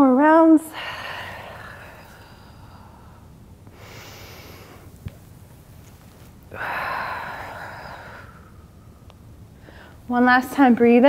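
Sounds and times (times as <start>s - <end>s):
woman breathing: 0.6s - 5.1s, 6.2s - 10.1s.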